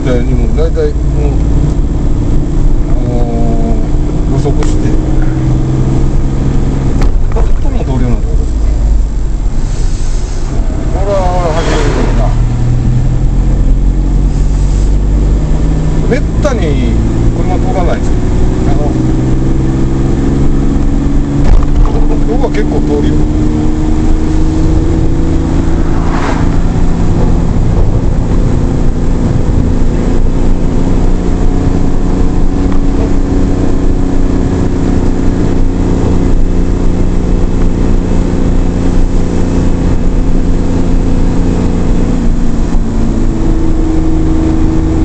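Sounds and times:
road noise rumble: 0.0 - 45.0
truck engine running: 0.0 - 45.0.

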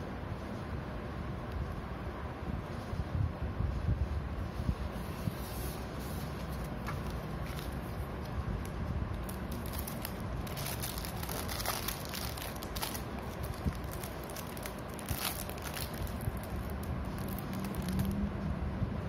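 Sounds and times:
plastic bag crinkling: 9.2 - 18.2.

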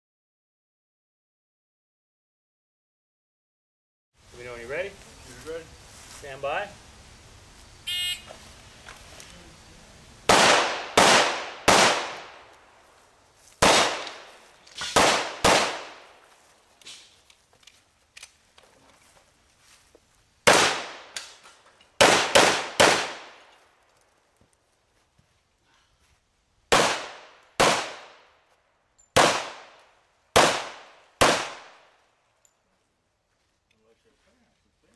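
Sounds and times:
handgun shots: 10.3 - 12.3, 13.6 - 16.0, 30.4 - 31.8
handgun shots with echo: 13.6 - 14.2.

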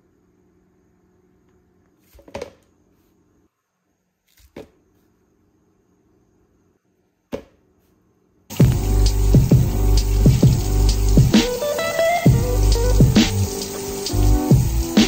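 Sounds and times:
faint steady hum: 0.0 - 15.0
music with heavy beat: 8.6 - 15.0.

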